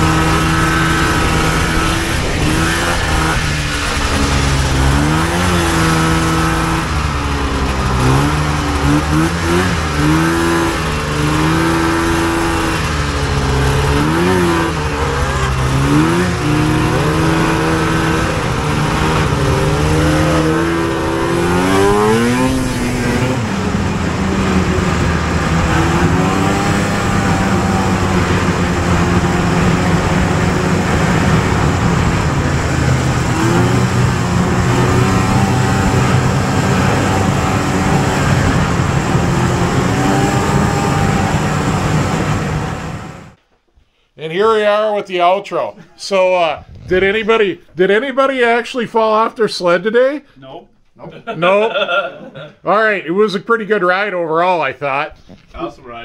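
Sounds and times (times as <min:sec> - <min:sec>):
rushing noise: 0:00.0 - 0:43.4
snowmobile engine revving: 0:00.0 - 0:43.4, 0:46.1 - 0:49.2.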